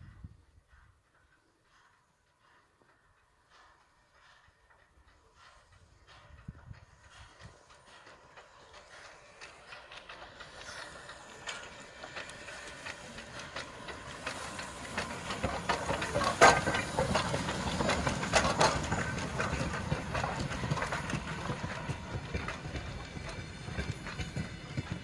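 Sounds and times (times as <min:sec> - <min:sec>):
steam locomotive exhaust chuffs: 0:00.0 - 0:25.0
running gear clanking: 0:00.7 - 0:25.0
steam hiss: 0:07.1 - 0:25.0.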